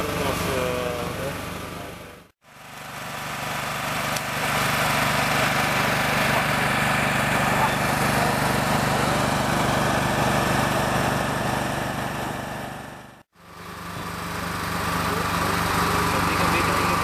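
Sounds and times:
engine running steadily: 0.0s - 17.0s.

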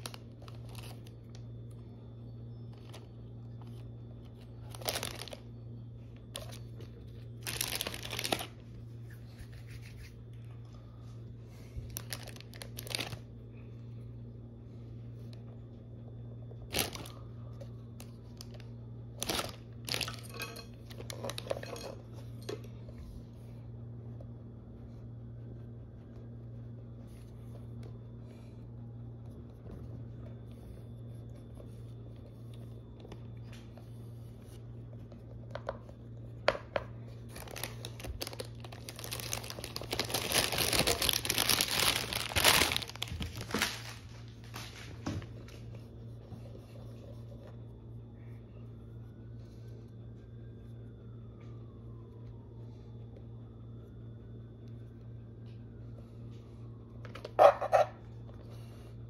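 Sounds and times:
crinkly rustling: 0.0s - 1.8s, 2.6s - 9.0s, 11.6s - 13.4s, 16.5s - 22.8s, 37.0s - 47.3s
steady low hum: 0.0s - 59.0s.

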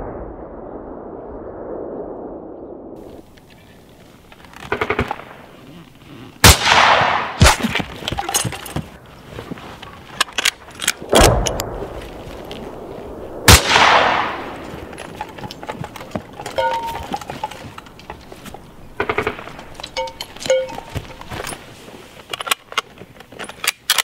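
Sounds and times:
rifle shots with echo: 6.4s - 7.7s, 13.3s - 14.9s
sharp clicks and rattles: 14.6s - 21.6s.

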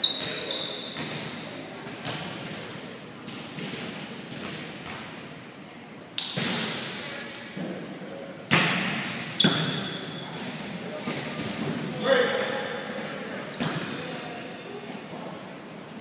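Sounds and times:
high squeak: 0.0s - 0.9s
volleyball thuds in gym: 0.2s - 5.3s.

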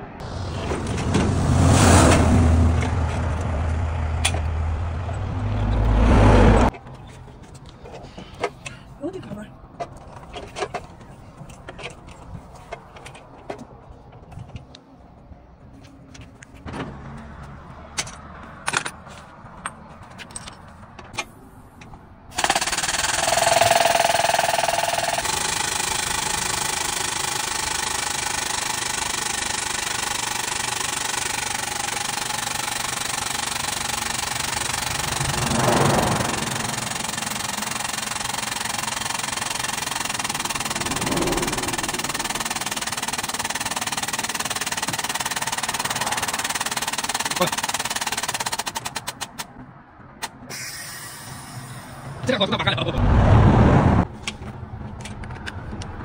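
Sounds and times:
rapid mechanical hammering: 22.3s - 49.5s
engine idling: 22.4s - 48.3s.

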